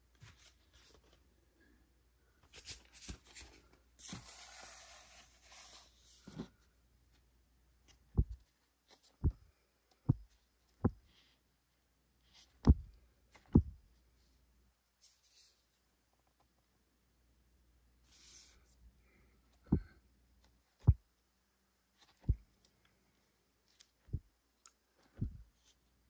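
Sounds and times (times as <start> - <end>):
flipping through records: 0.1 - 1.2, 2.4 - 6.6.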